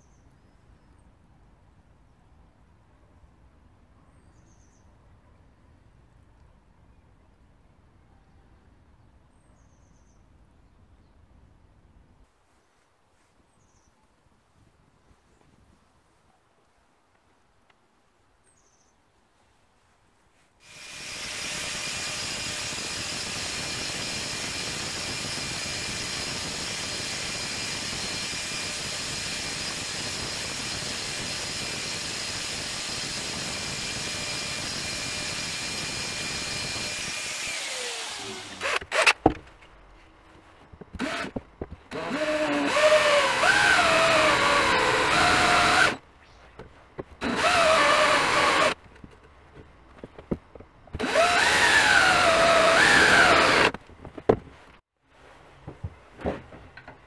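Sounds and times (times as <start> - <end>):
cordless drill boring into metal: 20.6 - 39.3, 41.0 - 46.0, 47.2 - 48.8, 51.0 - 53.8
grinding disc whining on steel: 20.7 - 39.3, 40.8 - 46.0, 47.2 - 48.8, 51.0 - 53.8.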